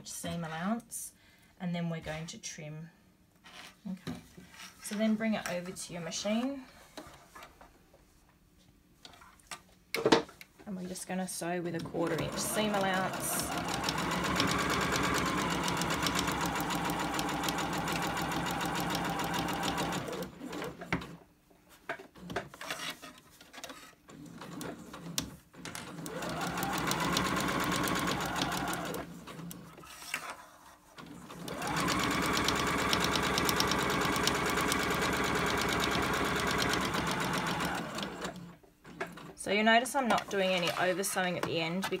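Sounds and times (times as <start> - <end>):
sewing machine stitching: 11.8 - 21.2, 23.7 - 30.0, 30.9 - 39.4.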